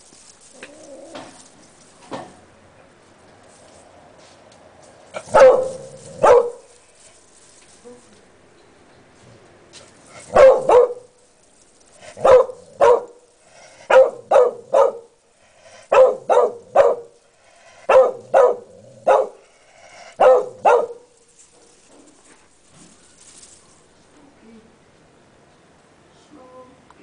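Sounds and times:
dog barking sharply: 10.3s - 11.0s, 13.9s - 15.1s, 15.9s - 17.1s, 17.9s - 19.4s, 20.2s - 21.0s.

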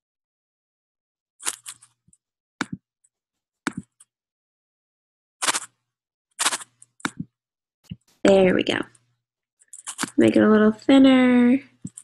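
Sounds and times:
computer mouse clicks: 9.6s - 10.2s, 11.8s - 12.0s.

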